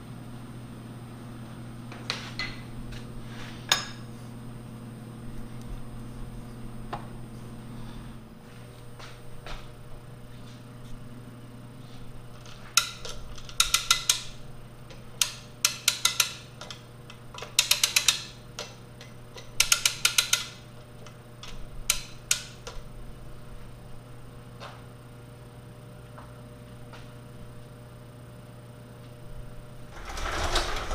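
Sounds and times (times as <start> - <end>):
hand-crank winch ratcheting clicks: 12.4 - 14.3, 15.2 - 16.8, 17.4 - 18.7, 19.4 - 20.6.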